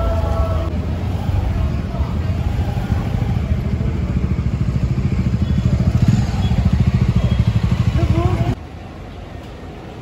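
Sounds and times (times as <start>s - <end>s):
motorcycle engine running: 2.8s - 8.6s.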